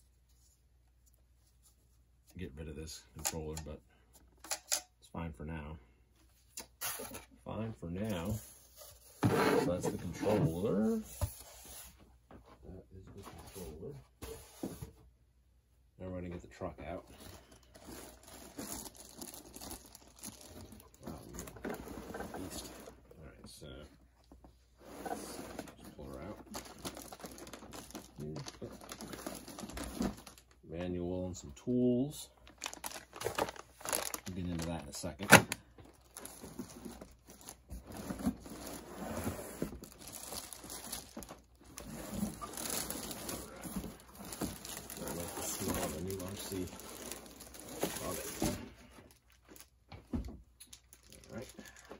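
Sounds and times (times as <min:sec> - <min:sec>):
cardboard and plastic rustling: 0:08.0 - 0:12.1, 0:16.6 - 0:30.6, 0:32.4 - 0:51.9
plastic bag crinkling: 0:17.4 - 0:21.1, 0:26.6 - 0:30.4, 0:32.4 - 0:35.2, 0:39.8 - 0:48.4, 0:50.6 - 0:51.9.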